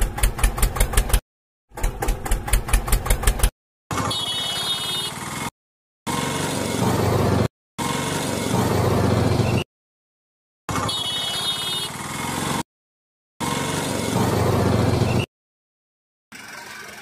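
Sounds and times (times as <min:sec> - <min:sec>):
vehicle engine rumbling: 0:13.4 - 0:15.3.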